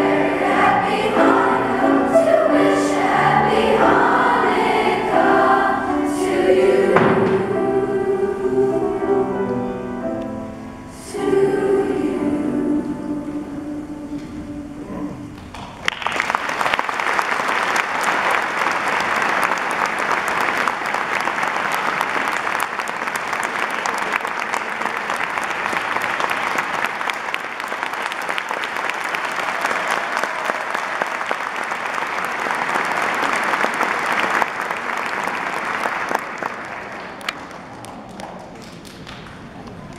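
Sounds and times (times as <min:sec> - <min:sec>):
choir singing note: 0:00.0 - 0:15.4
audience applauding: 0:15.4 - 0:39.9.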